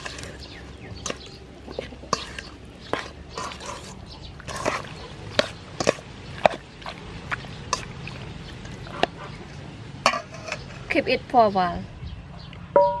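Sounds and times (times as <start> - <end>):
wet squelching: 0.0 - 10.4.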